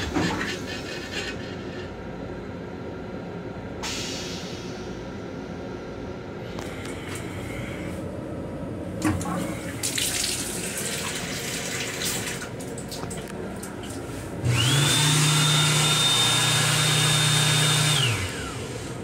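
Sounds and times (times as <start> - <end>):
water running from faucet: 9.8 - 12.6
hand dryer blowing: 14.1 - 19.0.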